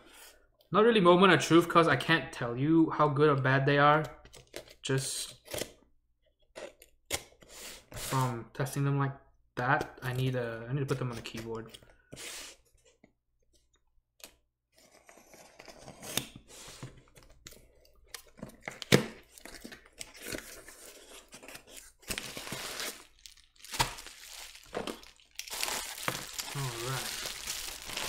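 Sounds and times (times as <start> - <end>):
bubble wrap rustling: 20.1 - 28.0.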